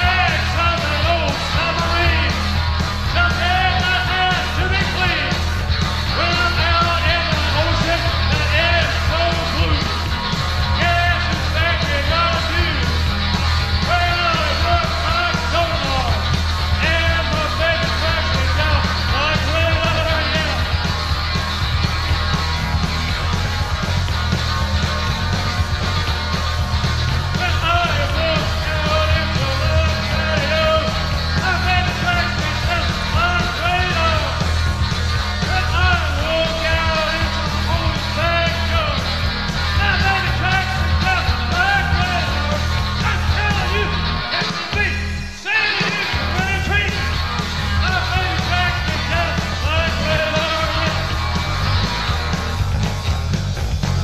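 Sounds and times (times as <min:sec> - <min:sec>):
person singing and yelling: 0:00.0 - 0:22.2, 0:27.1 - 0:52.1
live rock band playing: 0:00.0 - 0:54.0.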